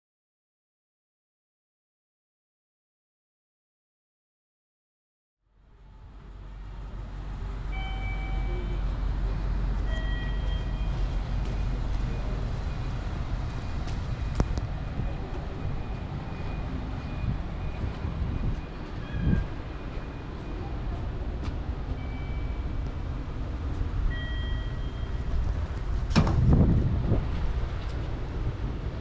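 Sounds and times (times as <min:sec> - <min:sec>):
low rumble of traffic: 0:05.4 - 0:29.0
short high tones: 0:07.7 - 0:09.0, 0:09.8 - 0:12.9.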